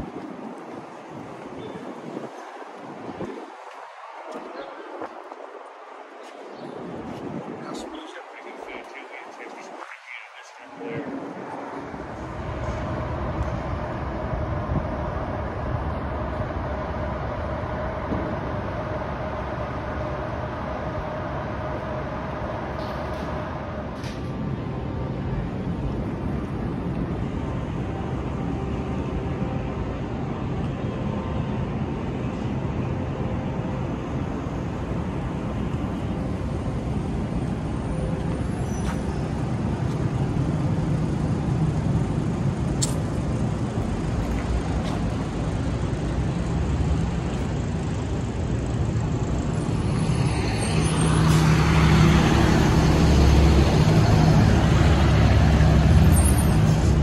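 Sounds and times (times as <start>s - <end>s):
street traffic rumble: 0.0s - 57.0s
heavy vehicle passing close: 43.2s - 57.0s.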